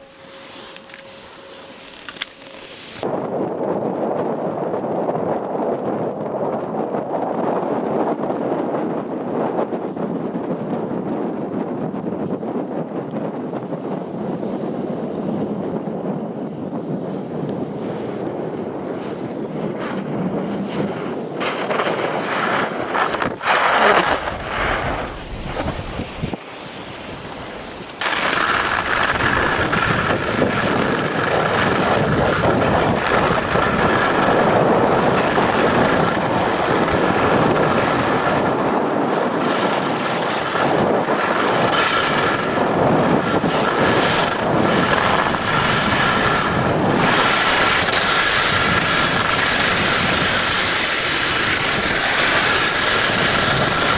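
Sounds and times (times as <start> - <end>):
snowboard scraping over snow: 0.0 - 53.9
wind on microphone: 0.0 - 53.9.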